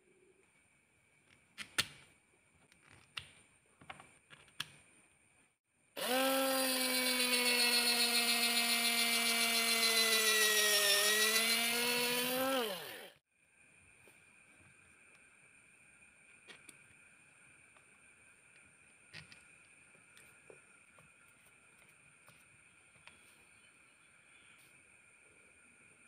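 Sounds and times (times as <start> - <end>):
electric screwdriver whining: 6.0 - 13.1.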